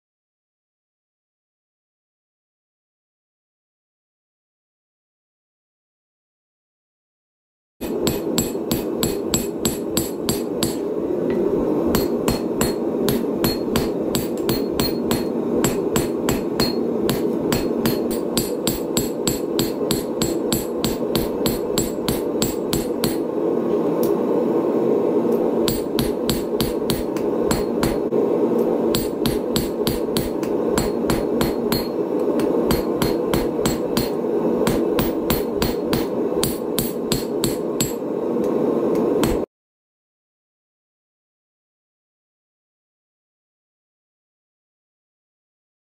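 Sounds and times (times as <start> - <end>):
hammer striking hot steel on anvil: 7.8 - 23.3, 25.6 - 28.1, 28.9 - 38.1, 39.2 - 39.5
steady rushing noise: 7.8 - 39.5.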